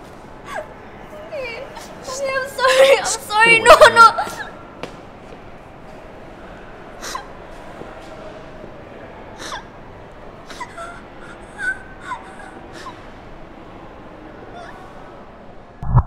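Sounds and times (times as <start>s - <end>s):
woman sobbing: 0.5s - 4.6s, 10.5s - 13.0s.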